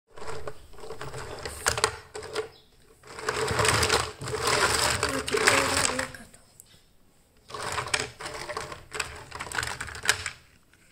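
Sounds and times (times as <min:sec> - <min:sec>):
toy car wheels rattling: 0:00.1 - 0:06.2, 0:07.5 - 0:10.5
plastic toy clicks: 0:03.1 - 0:06.2.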